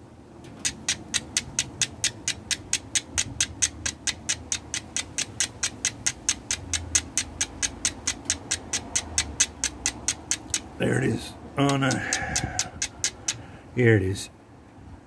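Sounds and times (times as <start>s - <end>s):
steel striker scraping flint: 0.6s - 10.8s, 11.7s - 13.4s.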